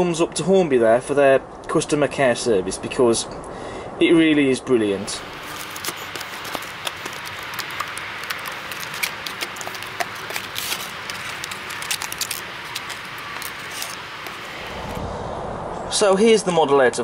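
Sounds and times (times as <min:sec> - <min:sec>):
plastic packaging crackling: 0:05.0 - 0:15.0.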